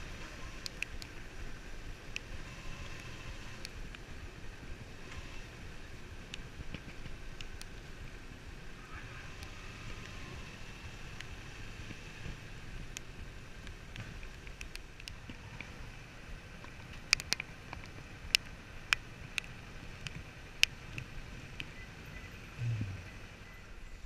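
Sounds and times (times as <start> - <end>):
motorcycle engine rumbling: 0.0 - 24.0
sharp irregular ticks: 16.9 - 21.8.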